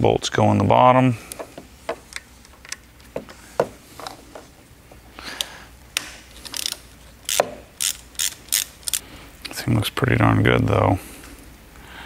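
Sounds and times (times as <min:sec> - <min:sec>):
hand ratchet clicking: 0:06.4 - 0:09.0.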